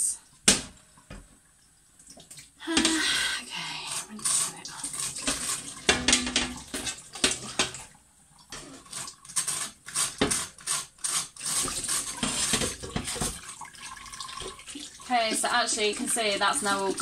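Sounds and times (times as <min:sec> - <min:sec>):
glass panel knocking in sink: 0:05.8 - 0:07.8
tap water splashing on glass: 0:11.6 - 0:17.0.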